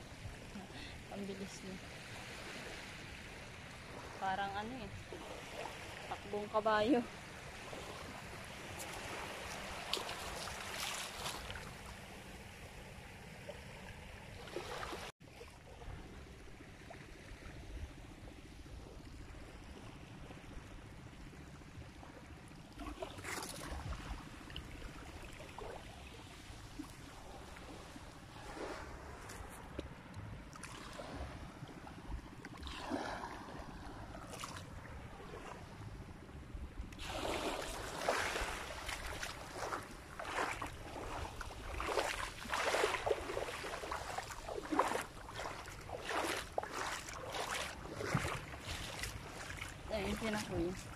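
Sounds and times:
sea water washing over sand: 0.0 - 20.5, 36.9 - 50.9.

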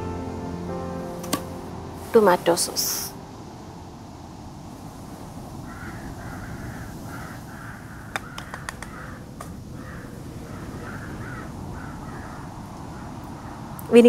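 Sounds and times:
crows cawing: 5.6 - 13.8
sharp clicks: 8.2 - 9.5.

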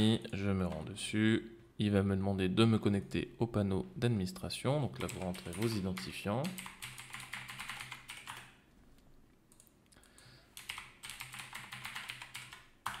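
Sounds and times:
computer keyboard typing: 5.0 - 8.6, 10.6 - 13.0.

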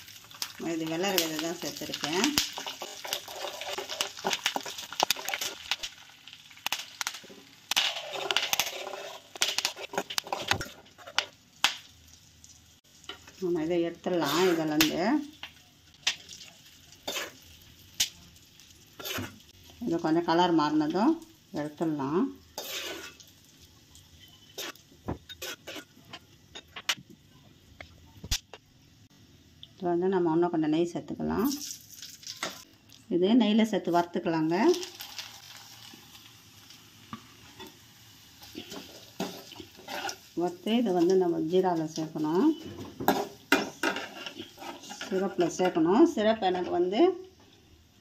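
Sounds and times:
seeds sizzling in oil: 0.0 - 26.5, 31.4 - 33.2, 33.8 - 48.0
metal spoon scraping a pan: 2.0 - 5.8, 7.7 - 11.3, 14.2 - 14.8, 17.0 - 17.4, 19.0 - 19.5, 22.5 - 23.2, 24.2 - 26.9, 38.4 - 40.4, 41.8 - 46.8.

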